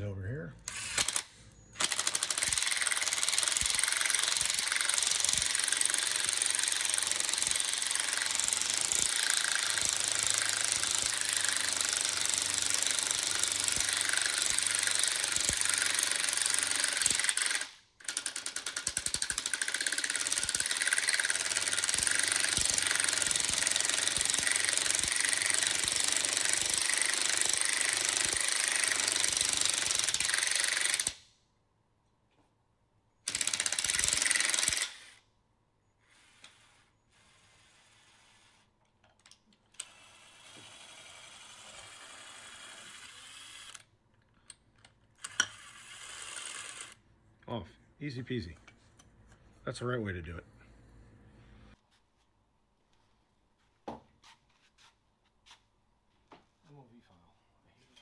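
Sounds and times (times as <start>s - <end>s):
power drill ratcheting clatter: 0.6s - 31.2s, 33.2s - 35.2s, 39.7s - 43.9s, 44.8s - 47.0s.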